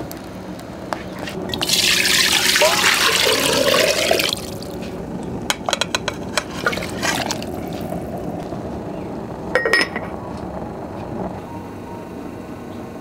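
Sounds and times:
water splashing in a pot: 0:01.1 - 0:04.8, 0:06.4 - 0:08.0
lid clinking onto clay pot: 0:09.6 - 0:10.1.

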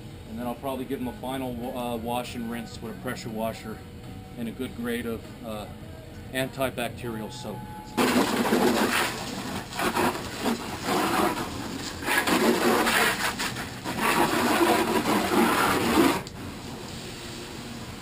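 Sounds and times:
hose spray splashing on plastic: 0:08.0 - 0:16.3.

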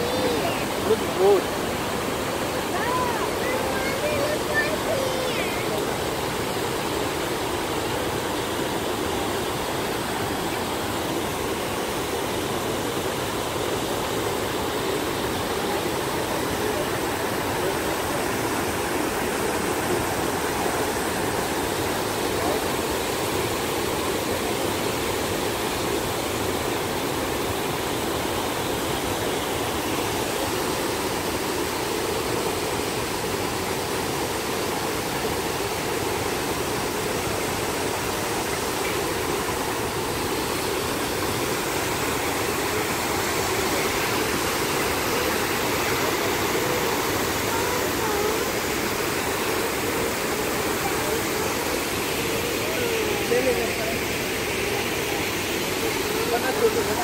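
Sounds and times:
waterfall roaring: 0:00.0 - 0:57.0.

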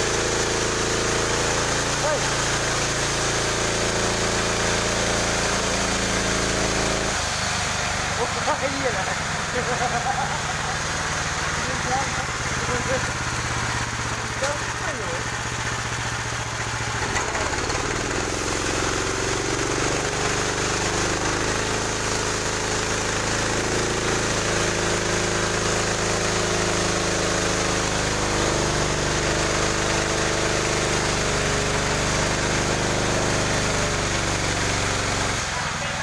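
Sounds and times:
saw blade cutting log: 0:00.0 - 0:07.6, 0:17.0 - 0:35.6
sawmill engine drone: 0:00.0 - 0:36.0.

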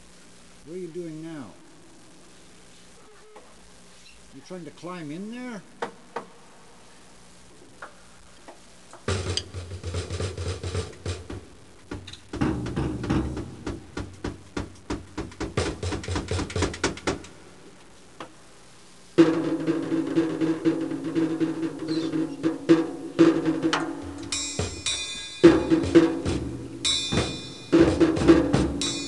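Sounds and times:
drumsticks tapping on drums: 0:07.8 - 0:17.4, 0:19.2 - 0:29.0.

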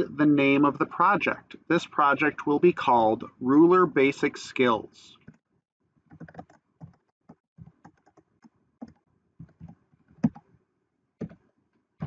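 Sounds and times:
computer keyboard typing: 0:06.1 - 0:07.0, 0:07.6 - 0:08.2.

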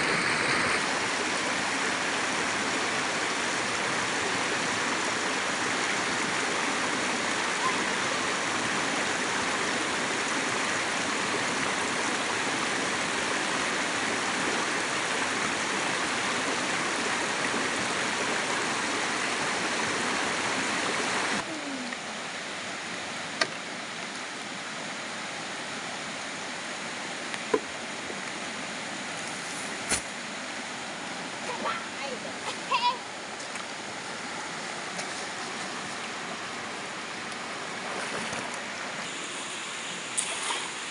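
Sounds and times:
river rushing over rocks: 0:00.0 - 0:21.5.

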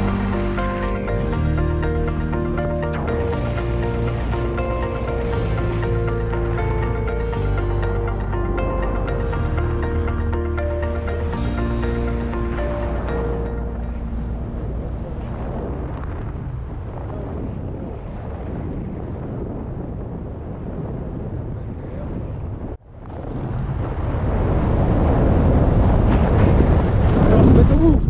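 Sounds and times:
wind buffeting microphone: 0:08.2 - 0:28.0.

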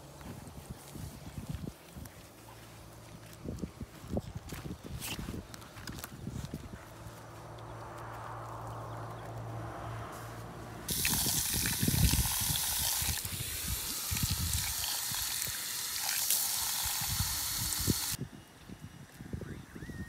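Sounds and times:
hose spray hissing: 0:10.9 - 0:18.2
water splattering: 0:10.9 - 0:18.2.

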